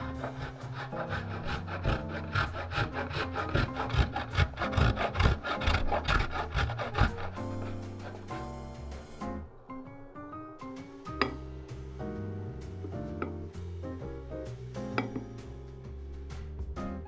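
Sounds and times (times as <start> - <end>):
cheese grating on metal grater: 0.0 - 8.5
soft background music: 0.0 - 17.0.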